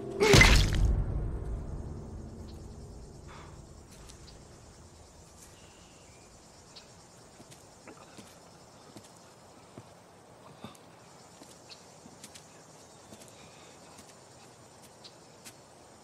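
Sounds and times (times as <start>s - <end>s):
insects chirping: 0.0s - 16.0s
low rumble: 0.8s - 5.1s.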